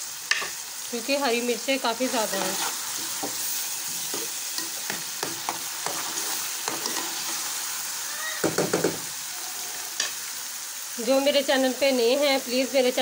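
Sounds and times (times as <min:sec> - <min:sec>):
food sizzling in hot oil: 0:00.0 - 0:13.0
metal spatula scraping a pan: 0:01.9 - 0:07.6.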